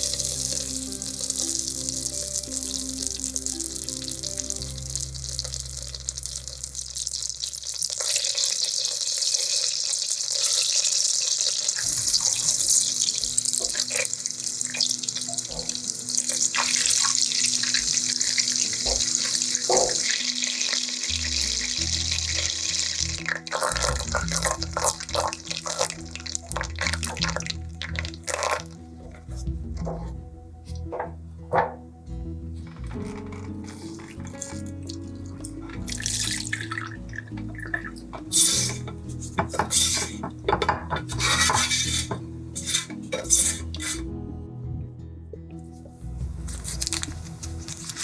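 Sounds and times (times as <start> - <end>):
butter sizzling in a saucepan: 0.0 - 28.8, 35.8 - 37.0, 38.3 - 40.2, 41.1 - 44.0
butter crackling and popping: 0.0 - 29.1, 32.8 - 44.0, 46.5 - 48.0.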